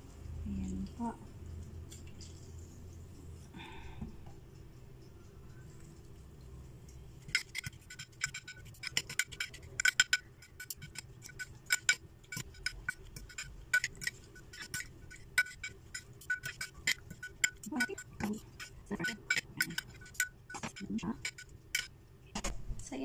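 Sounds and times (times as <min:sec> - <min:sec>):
utensils clinking against glass dish: 0:07.3 - 0:21.9.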